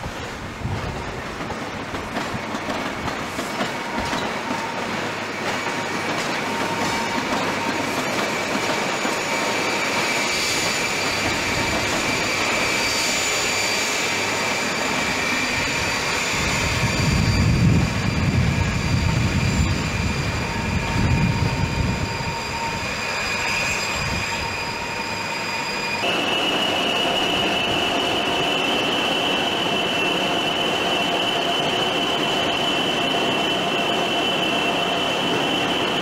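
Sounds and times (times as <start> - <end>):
diesel train pulling away: 0.1 - 36.0
high engine whine: 9.2 - 36.0.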